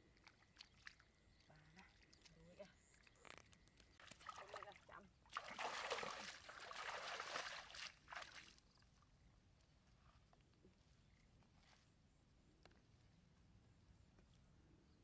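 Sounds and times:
muddy water splashing: 0.0s - 8.9s.

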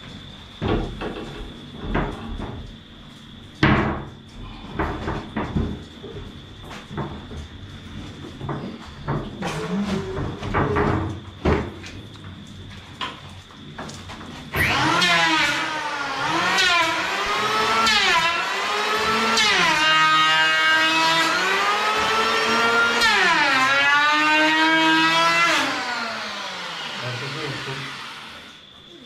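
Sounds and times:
electric hand planer cutting wood: 14.6s - 28.6s.

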